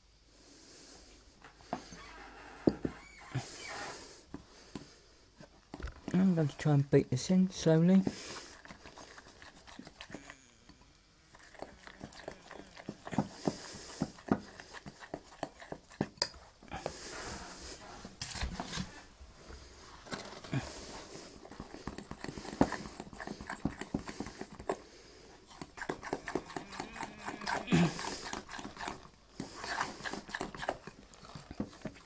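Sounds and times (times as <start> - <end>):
batter beaten in bowl: 7.6 - 10.3, 11.3 - 16.9, 21.4 - 24.8, 25.4 - 32.0.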